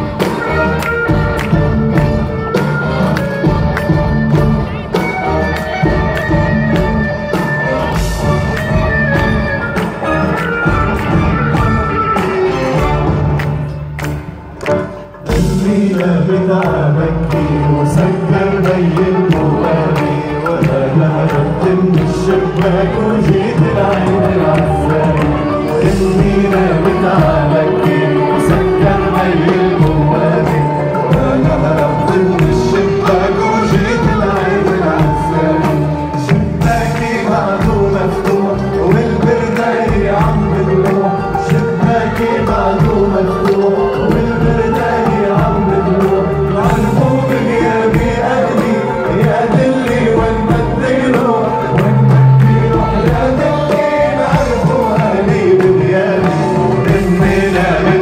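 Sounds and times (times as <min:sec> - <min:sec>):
pop song by orchestra and band: 0:00.0 - 0:58.0
man singing: 0:15.2 - 0:58.0.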